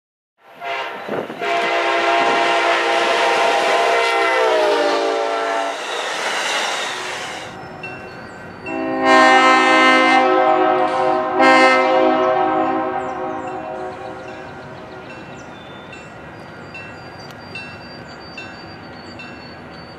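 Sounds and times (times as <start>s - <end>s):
train air horn: 0.4s - 7.6s, 8.7s - 14.8s
passing train rumble: 0.4s - 19.9s.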